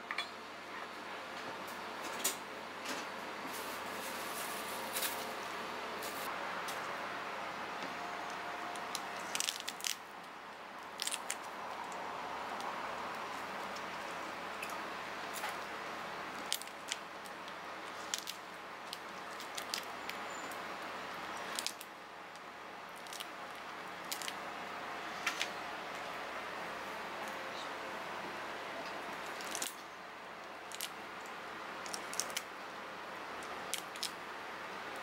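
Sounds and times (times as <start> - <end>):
shrimp shells cracking: 8.9 - 10.0, 11.0 - 11.5, 18.0 - 19.9, 21.5 - 21.9, 24.1 - 24.4, 29.4 - 29.8, 33.7 - 34.1.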